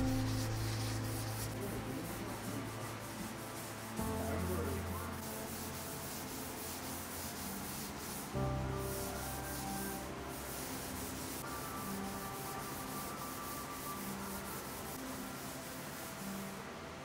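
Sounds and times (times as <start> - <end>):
sanding block rasping on wood: 0.0 - 16.6.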